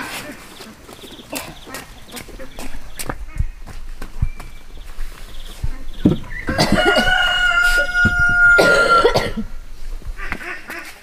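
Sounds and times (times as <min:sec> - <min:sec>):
wooden beams knocking: 0:06.0 - 0:07.3
rooster crowing: 0:06.4 - 0:09.2.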